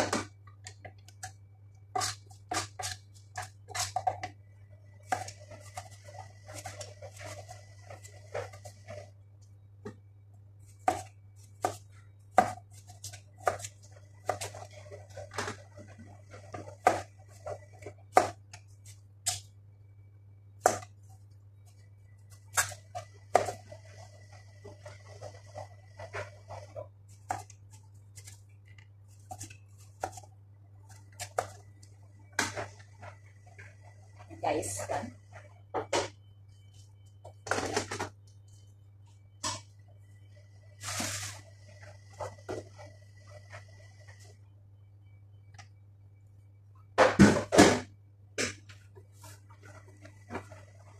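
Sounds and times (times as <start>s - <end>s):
steady low hum: 0.0s - 50.9s
knife scraping: 1.9s - 4.1s.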